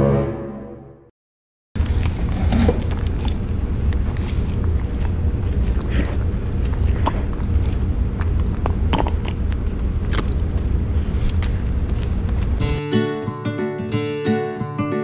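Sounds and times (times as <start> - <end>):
dog chewing on a bone: 1.8 - 12.8.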